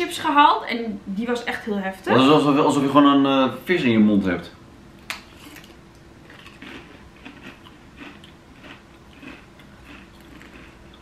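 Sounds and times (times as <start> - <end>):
potato crisps being chewed: 5.1 - 11.0.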